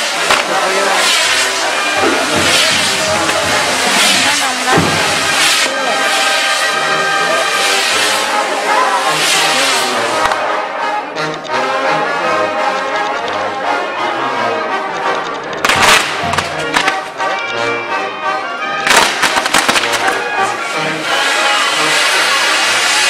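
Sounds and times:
fireworks burning: 0.0 - 10.7, 15.1 - 17.2, 18.8 - 23.0
loud firework crackling bursts: 0.0 - 10.7, 15.6 - 17.2, 18.8 - 23.0
brass band music: 0.0 - 23.0.

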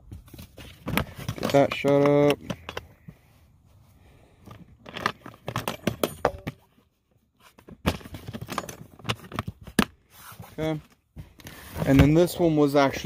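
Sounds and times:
plastic cans clicking and knocking: 0.4 - 3.1.

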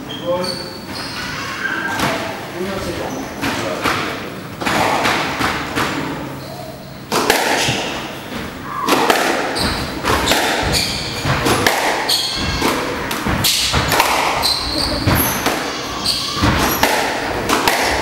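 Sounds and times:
shoes squeaking on wooden floor: 0.0 - 3.7, 8.2 - 17.5
squash ball cracking off racquets: 3.4 - 6.2, 7.1 - 18.0
ball thudding against walls: 7.1 - 18.0.

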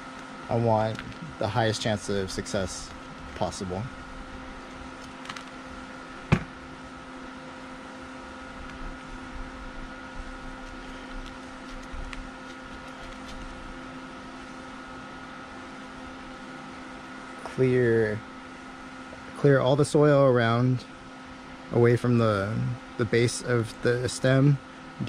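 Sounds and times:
machine hum: 0.0 - 25.0.

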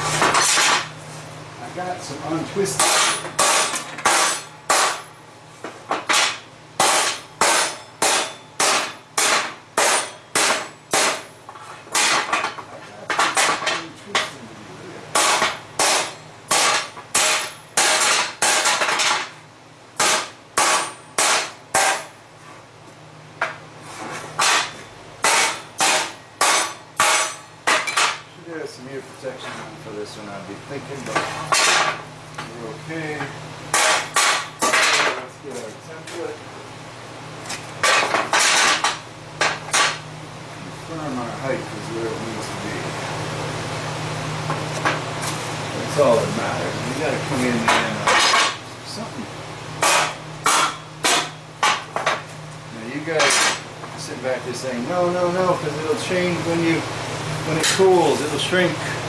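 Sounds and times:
hammer striking steel: 2.8 - 5.1, 6.0 - 11.3, 15.2 - 19.3, 20.0 - 22.1, 24.4 - 28.2, 33.7 - 35.1, 49.8 - 51.9.

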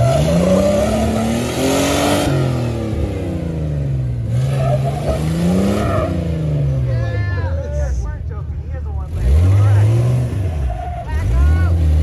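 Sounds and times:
engine revving hard: 0.0 - 6.7, 9.1 - 12.0
tires spinning: 0.0 - 7.2, 8.8 - 12.0.

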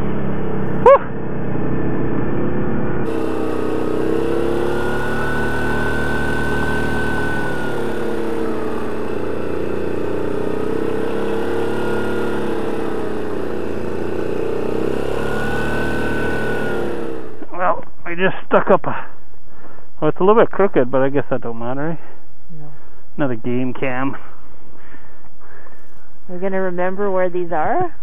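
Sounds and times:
high-pitched whine: 0.0 - 18.2
atv engine running: 0.0 - 28.0.

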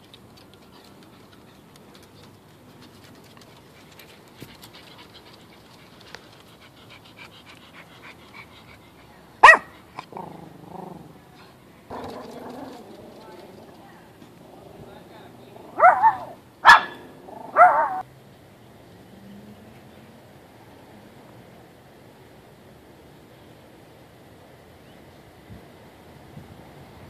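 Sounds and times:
dog panting: 0.4 - 10.1
dog barking: 9.4 - 9.7, 15.7 - 18.0.

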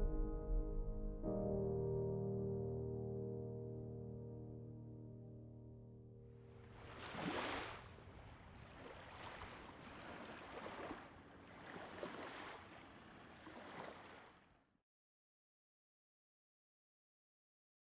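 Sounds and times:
small waves lapping on pebbles: 6.7 - 14.5.

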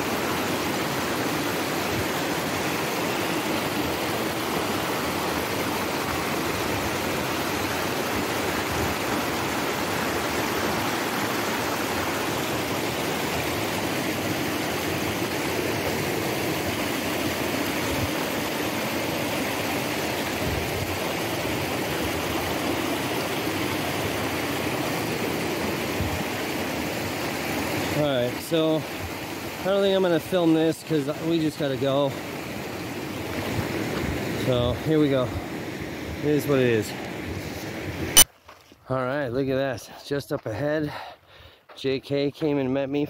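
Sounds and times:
fast-flowing river water rushing: 0.0 - 38.2.

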